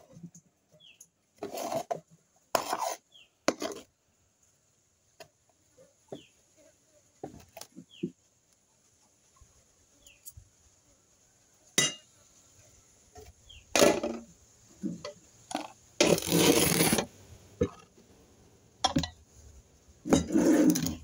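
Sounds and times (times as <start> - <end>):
scraping rustle: 0.0 - 3.9, 14.8 - 17.8, 20.0 - 21.0
metal pot and utensils clattering: 11.8 - 12.0, 18.8 - 19.2, 20.1 - 21.0.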